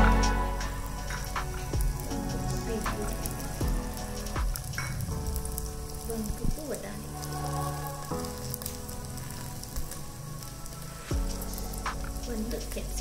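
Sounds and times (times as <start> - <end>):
soft background music: 0.0 - 13.0.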